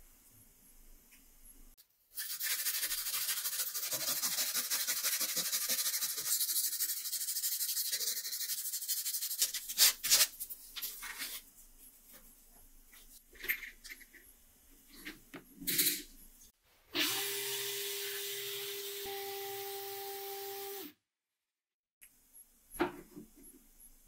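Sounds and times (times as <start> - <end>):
blade scratching on sandpaper: 2.2 - 10.3.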